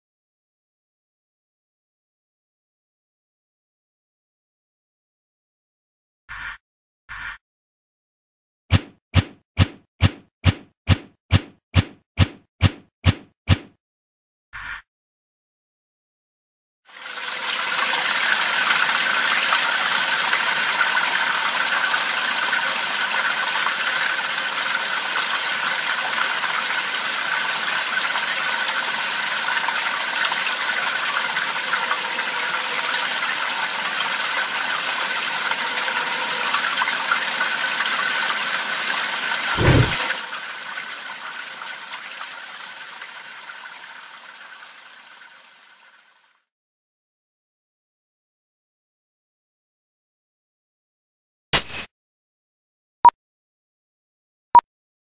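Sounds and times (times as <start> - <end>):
flowing water rushing: 17.0 - 46.0
low thud: 39.6 - 40.0.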